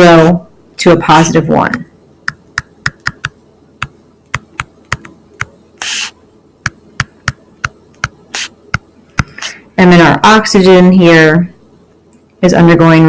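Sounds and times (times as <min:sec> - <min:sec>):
stylus tapping on tablet screen: 0:02.3 - 0:09.5
short hiss: 0:05.8 - 0:06.2, 0:08.3 - 0:08.5.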